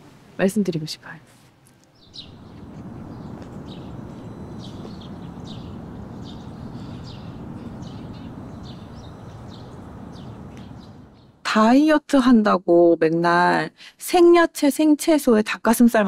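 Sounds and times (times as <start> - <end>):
low outdoor background noise: 0.0 - 16.0
small birds chirping: 1.8 - 11.4.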